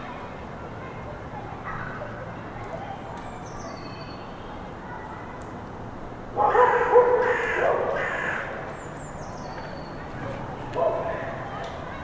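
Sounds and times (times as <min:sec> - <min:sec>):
small birds chirping: 0:01.9 - 0:04.6, 0:08.0 - 0:10.2
loud drawn-out call: 0:06.4 - 0:08.6.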